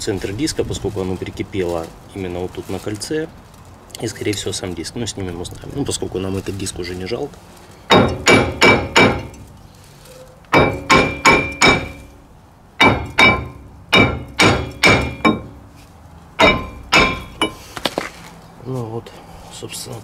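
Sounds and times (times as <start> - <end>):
hammer striking metal brake disc: 7.9 - 9.5, 10.5 - 12.2, 12.8 - 15.8, 16.4 - 17.7.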